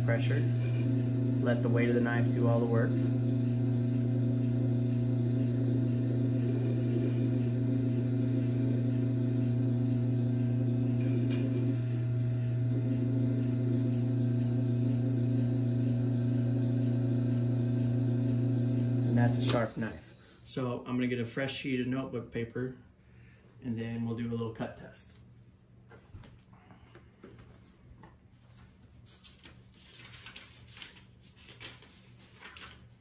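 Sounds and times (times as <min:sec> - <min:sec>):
electric motor humming: 0:00.0 - 0:19.9.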